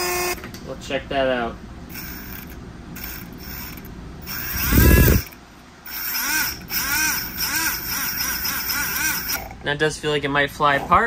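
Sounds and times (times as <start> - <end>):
small motor whining: 0.0 - 0.4, 1.9 - 9.5.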